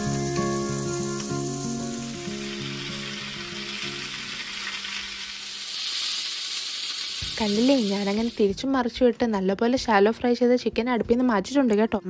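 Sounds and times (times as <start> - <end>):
background music: 0.0 - 4.9, 7.1 - 12.0
chicken sizzling in oil: 0.0 - 8.5.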